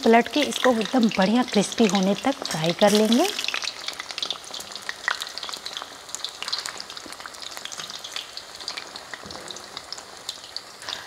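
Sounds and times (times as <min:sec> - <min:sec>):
metal spoon turning food: 0:00.0 - 0:07.2
batter frying in hot oil: 0:00.0 - 0:11.0
crackling sizzle with small pops: 0:00.0 - 0:11.0.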